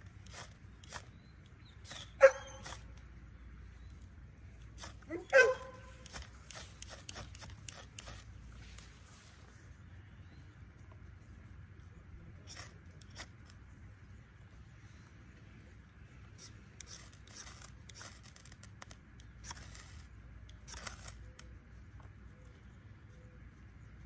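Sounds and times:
knife scraping ferrocerium rod: 0:00.0 - 0:03.0, 0:04.7 - 0:08.3, 0:16.4 - 0:21.4.

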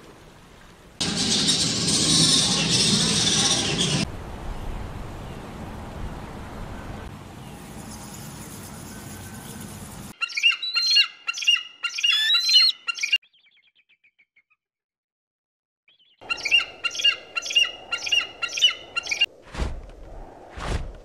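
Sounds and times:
bird of prey squealing call: 0:10.2 - 0:13.2.

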